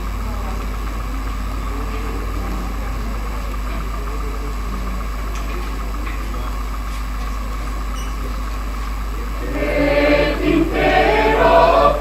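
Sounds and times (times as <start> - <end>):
low mechanical hum: 0.0 - 12.0
faint high whine: 9.1 - 12.0.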